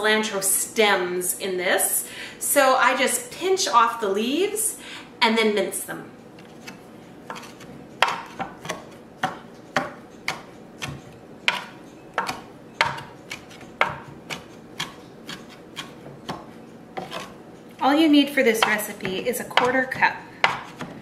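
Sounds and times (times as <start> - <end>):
knife chopping on cutting board: 6.6 - 17.4, 18.6 - 21.0.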